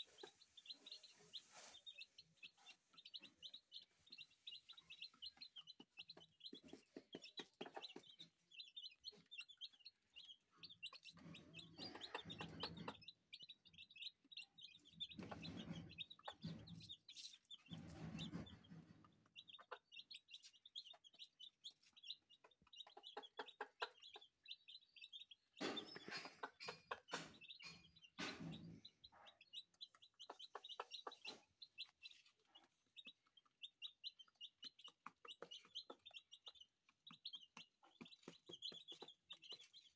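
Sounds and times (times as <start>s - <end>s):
chicks peeping: 0.0s - 39.9s
hen clucking: 0.0s - 39.9s.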